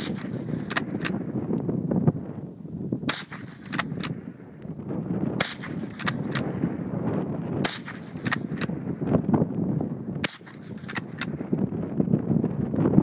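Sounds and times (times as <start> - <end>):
rifle shots: 0.0 - 1.3, 3.1 - 4.3, 5.3 - 6.6, 7.6 - 9.0, 10.2 - 11.4
rifle slide clicks: 0.1 - 1.7, 3.1 - 4.2, 5.4 - 6.5, 7.7 - 8.7, 10.2 - 11.4.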